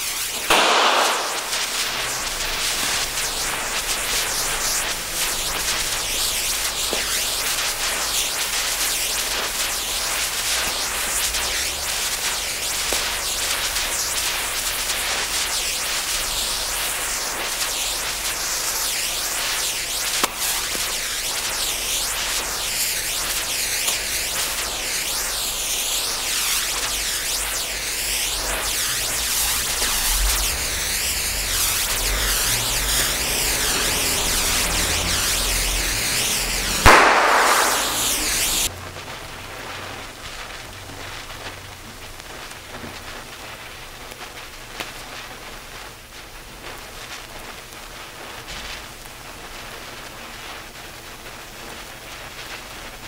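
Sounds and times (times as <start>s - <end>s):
sharp crack: 0.0s - 8.6s, 19.7s - 23.2s, 28.4s - 38.7s
lit fuse sputtering hiss: 0.0s - 53.0s.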